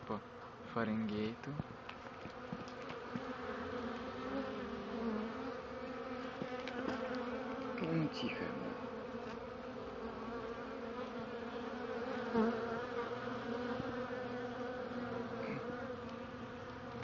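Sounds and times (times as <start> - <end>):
honey bees buzzing: 0.0 - 17.0.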